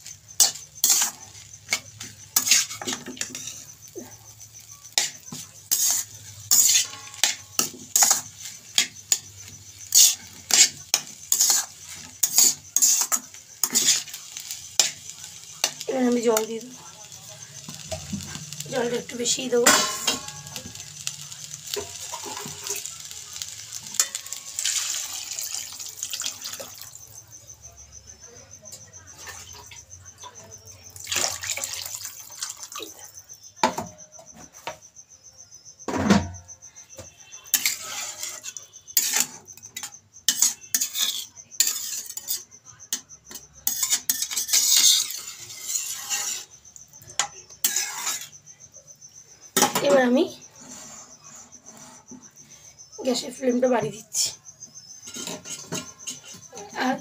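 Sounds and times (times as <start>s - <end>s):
metal spatula scraping a pan: 0.0s - 27.1s, 35.9s - 48.4s, 49.5s - 52.8s, 54.2s - 57.0s
water poured into a pan: 21.2s - 27.2s, 31.0s - 33.0s.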